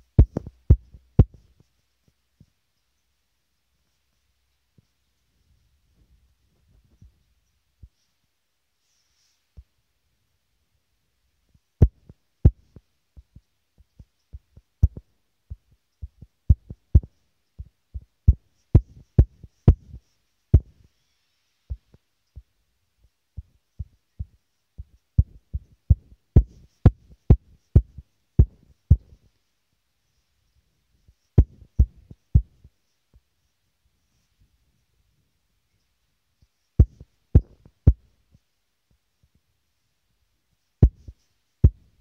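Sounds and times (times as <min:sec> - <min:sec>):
finger tapping on touchscreen: 0:14.4 - 0:17.1.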